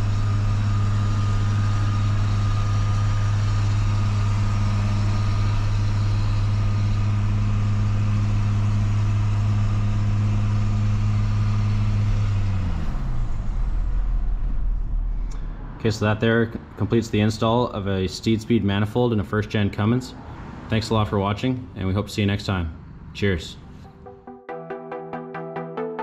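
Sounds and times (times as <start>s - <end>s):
diesel engine drone from cab: 0.0s - 18.2s.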